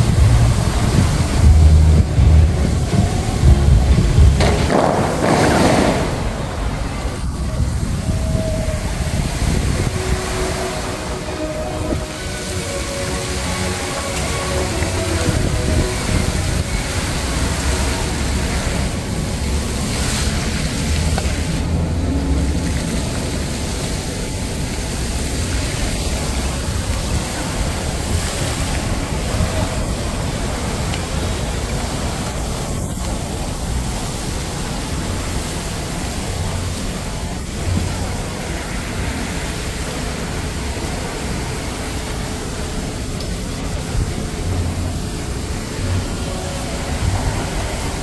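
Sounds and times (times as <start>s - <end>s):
fountain water jetting and splashing: 0.0s - 48.0s.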